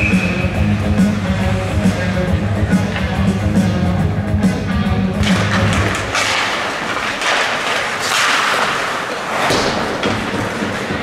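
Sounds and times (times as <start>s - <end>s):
arena music: 0.0s - 8.4s
hockey sticks and puck knocking: 2.6s - 3.8s, 5.1s - 11.0s
skate blades scraping ice: 5.2s - 11.0s.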